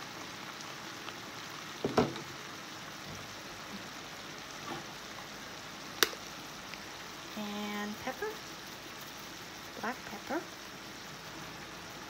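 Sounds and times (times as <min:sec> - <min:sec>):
food sizzling in a pan: 0:00.0 - 0:12.0
knock: 0:01.8 - 0:02.2.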